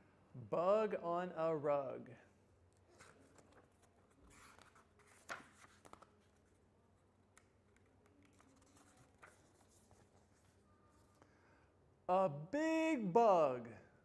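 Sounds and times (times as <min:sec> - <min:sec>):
book pages rustling: 0:02.8 - 0:06.7, 0:07.3 - 0:11.2.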